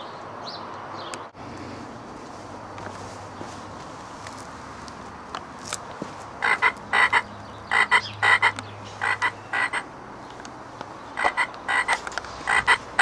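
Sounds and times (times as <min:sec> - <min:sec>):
steady background hiss: 0:01.3 - 0:13.0
short loud croaks: 0:06.4 - 0:09.9, 0:11.2 - 0:13.0.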